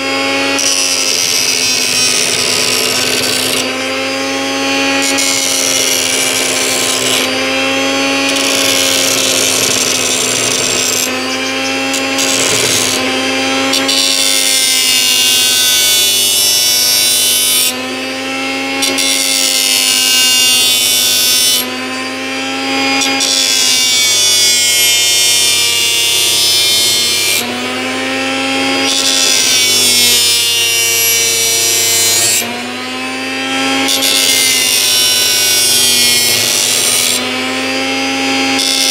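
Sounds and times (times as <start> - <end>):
blender motor whine: 0.0 - 38.9
knife blade grinding on disc: 0.6 - 17.7, 33.7 - 37.4.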